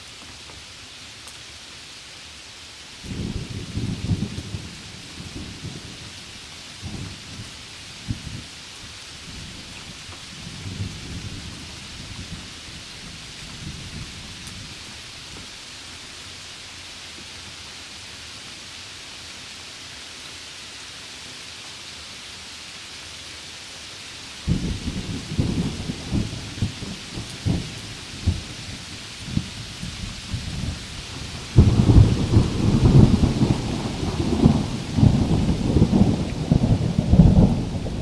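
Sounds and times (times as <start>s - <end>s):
heavy rain on leaves: 0.0s - 38.0s
thunder rumbling: 3.1s - 6.2s, 24.5s - 38.0s.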